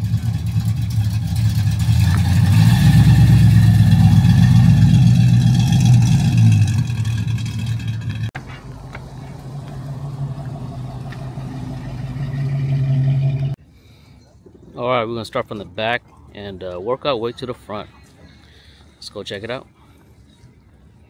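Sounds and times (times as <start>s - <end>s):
vehicle engine humming: 0.0s - 13.6s.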